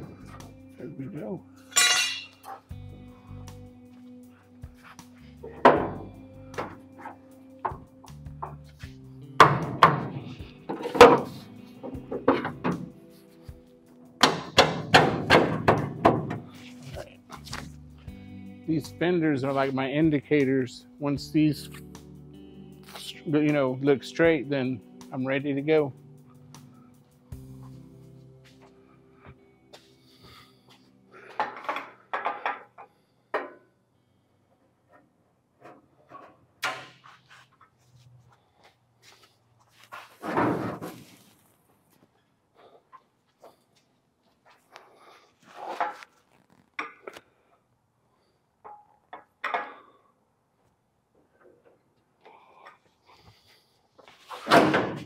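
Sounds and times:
background music: 0.0s - 34.2s
metallic thunks of sheet metal: 9.4s - 12.9s, 14.2s - 16.5s, 54.4s - 55.0s.

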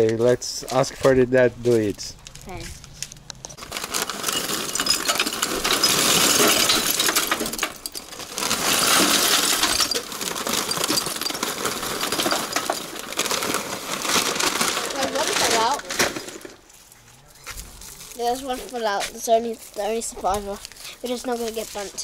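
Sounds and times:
charcoal clattering into metal grill: 3.6s - 16.6s.

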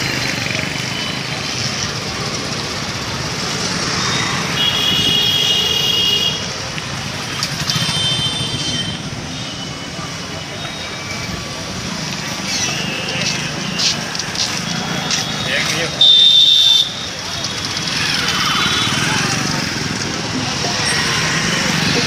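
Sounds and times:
motorcycle engines passing: 0.0s - 22.0s
vehicle horn: 16.0s - 17.0s.

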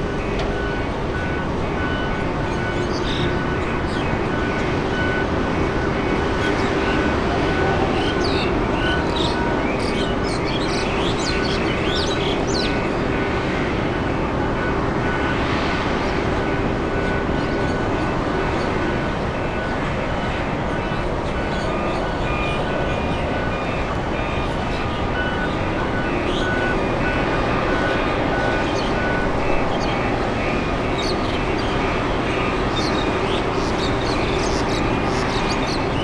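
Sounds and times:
large engine rumbling: 0.0s - 36.0s
birds chirping: 32.7s - 36.0s.

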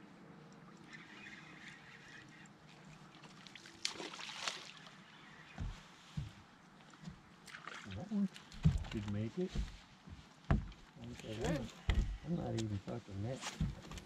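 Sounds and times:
water lapping against boat hull: 0.5s - 14.0s
water splash: 0.7s - 5.8s, 7.4s - 9.1s
dull knocks on boat: 8.6s - 10.8s, 11.5s - 12.2s.

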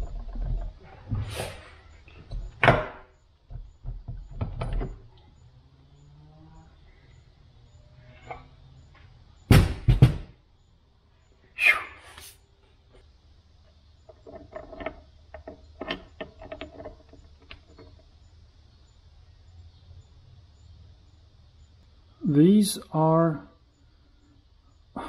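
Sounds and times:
metal knocks and clanks: 0.0s - 1.4s, 2.2s - 5.1s, 9.5s - 10.4s, 14.0s - 18.1s.

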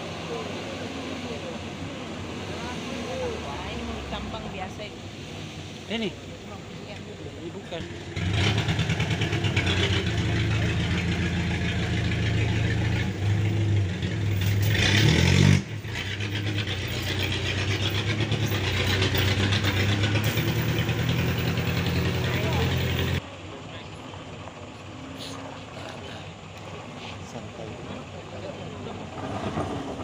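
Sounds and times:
vehicle engine revving under load: 7.7s - 23.2s.

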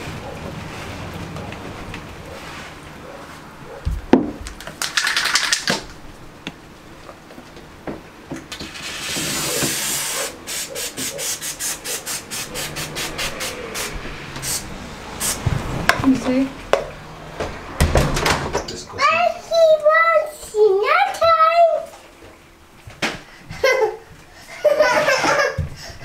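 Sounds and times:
rattle of can being shaken: 4.6s - 5.9s
aerosol can spraying: 8.8s - 15.5s.

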